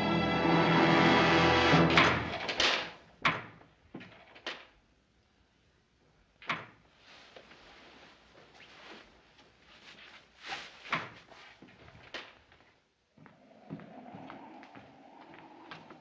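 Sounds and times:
orchestral music: 0:00.0 - 0:02.4.

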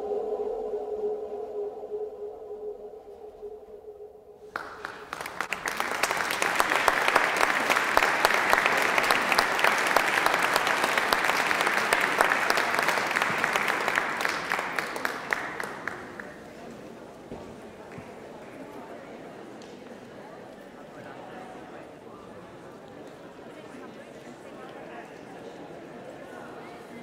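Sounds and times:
crowd applause: 0:04.5 - 0:16.6.

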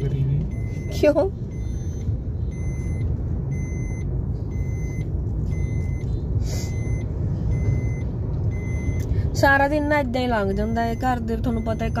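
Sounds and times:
car engine and road noise: 0:00.0 - 0:12.0
faint high beep: 0:00.5 - 0:06.1, 0:06.7 - 0:09.0.

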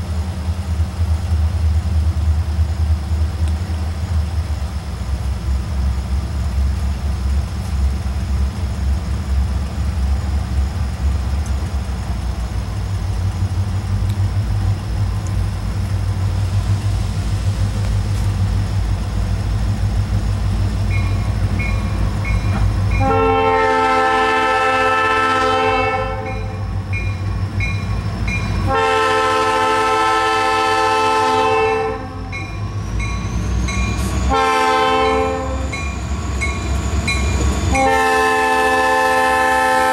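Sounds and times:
locomotive engine rumble: 0:00.0 - 0:39.9
locomotive air horn blasts: 0:22.9 - 0:26.7, 0:28.6 - 0:32.4, 0:34.3 - 0:35.8, 0:37.7 - 0:39.9.

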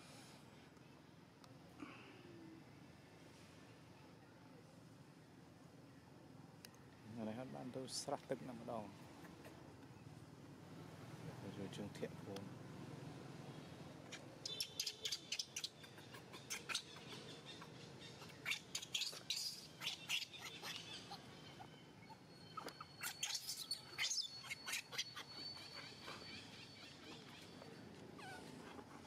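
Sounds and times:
baby monkey squeaks and chirps: 0:14.1 - 0:27.6, 0:28.2 - 0:28.7.

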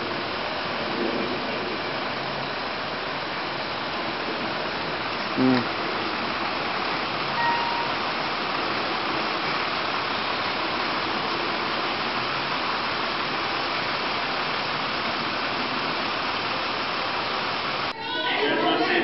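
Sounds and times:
steady rushing noise: 0:00.0 - 0:18.0
faint tone: 0:07.3 - 0:08.0.

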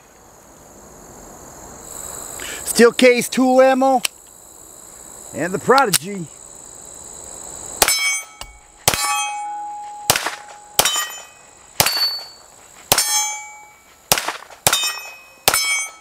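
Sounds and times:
steel target clanging: 0:07.8 - 0:16.0
pistol shots: 0:08.8 - 0:09.4, 0:10.0 - 0:13.3, 0:14.1 - 0:16.0.

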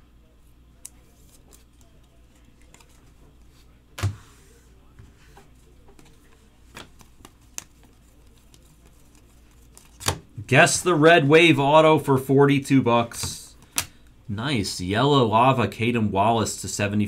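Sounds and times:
low steady hum: 0:00.0 - 0:17.0
cards and plastic sleeves rustling: 0:00.8 - 0:14.0.

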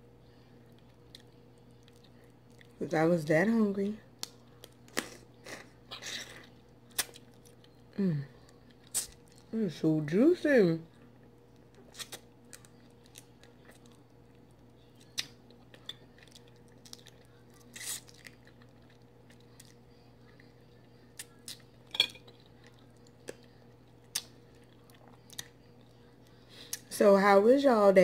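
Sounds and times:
person chewing: 0:04.2 - 0:09.5, 0:11.2 - 0:25.6.

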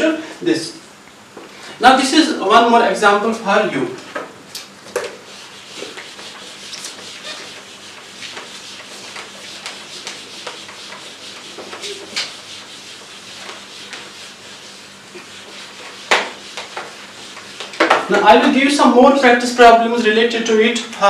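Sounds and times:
eraser wiping whiteboard: 0:05.0 - 0:20.1.

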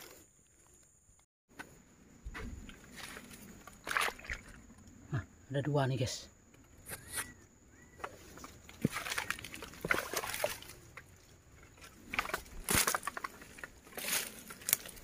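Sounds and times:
water sloshing: 0:03.5 - 0:04.8, 0:08.3 - 0:14.9
rustling through undergrowth: 0:08.0 - 0:15.0.

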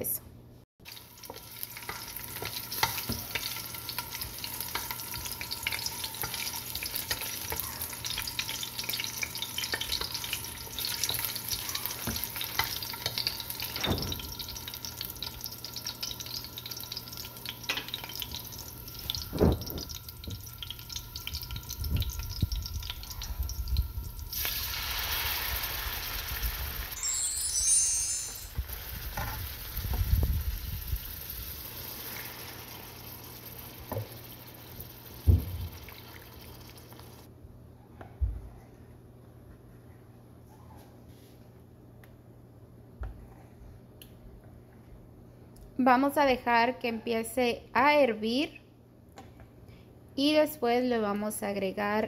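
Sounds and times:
onions sizzling in oil: 0:00.8 - 0:37.3
sauce hissing in hot oil: 0:21.2 - 0:27.6, 0:28.3 - 0:37.2.

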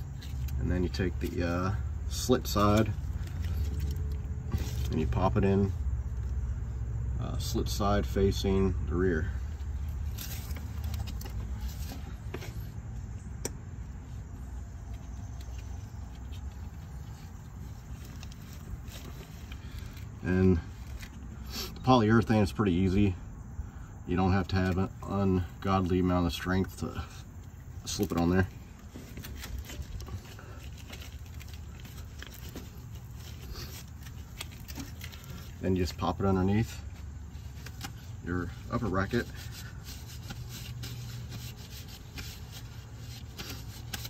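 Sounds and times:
low background hum: 0:00.0 - 0:44.0
light clicks and handling noise: 0:02.5 - 0:05.2, 0:09.8 - 0:13.6, 0:14.5 - 0:21.2, 0:25.6 - 0:36.2, 0:36.8 - 0:38.6.

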